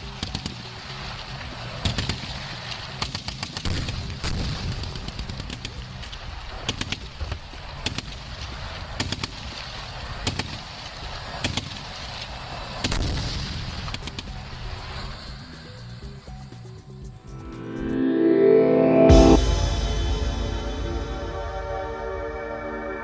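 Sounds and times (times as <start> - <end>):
heavy blast: 19.1 - 22.1.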